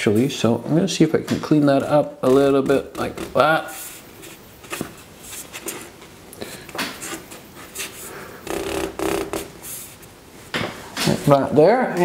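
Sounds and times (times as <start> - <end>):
brush scrubbing on paper: 2.4 - 6.0, 7.0 - 8.3, 9.6 - 10.1.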